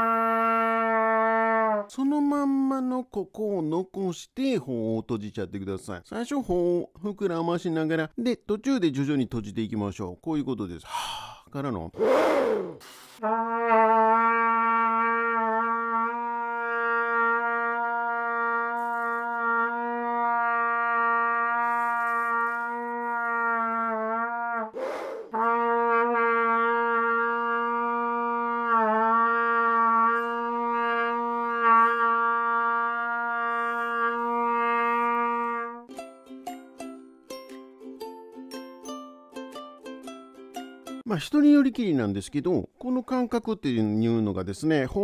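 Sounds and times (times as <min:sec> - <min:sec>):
trumpet long low tones: 0:00.0 - 0:01.9, 0:13.2 - 0:35.9
quick breath: 0:10.9 - 0:13.2, 0:24.8 - 0:25.4.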